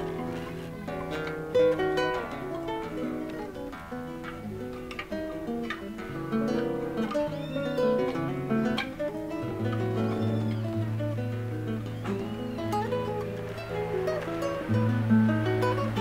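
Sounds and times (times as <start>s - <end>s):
classical guitar fingerstyle: 0.0s - 16.0s
finger squeaks on guitar strings: 7.0s - 10.9s.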